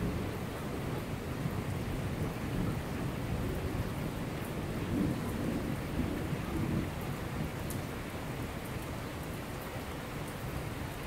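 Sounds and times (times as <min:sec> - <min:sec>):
low rumble of thunder: 0:00.0 - 0:07.9
heavy rain on street: 0:00.0 - 0:11.0.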